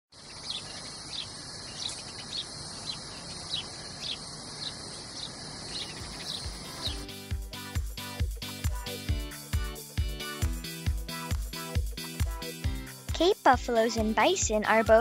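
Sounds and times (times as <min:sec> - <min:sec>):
insect chorus: 0:00.2 - 0:07.0
high bird chirps: 0:00.2 - 0:07.1.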